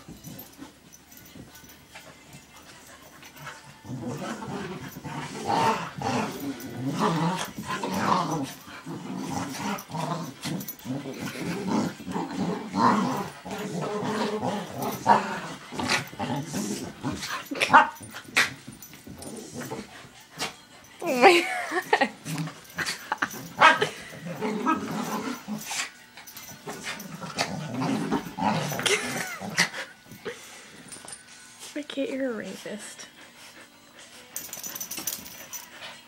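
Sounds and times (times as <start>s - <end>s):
dogs growling while playing: 0.0s - 31.2s.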